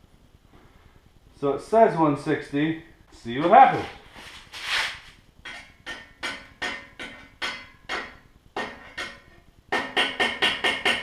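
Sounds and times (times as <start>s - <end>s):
welding rod tapping on steel: 5.4s - 11.0s.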